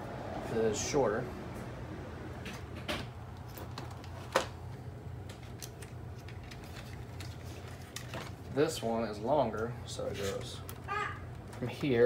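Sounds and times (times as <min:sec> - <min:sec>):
steady low hum: 0:00.0 - 0:12.0
clicks and rustling of wires: 0:02.4 - 0:08.9, 0:09.5 - 0:12.0.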